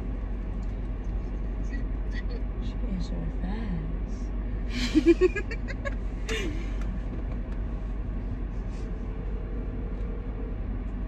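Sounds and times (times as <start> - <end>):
car interior hum: 0.0 - 11.0.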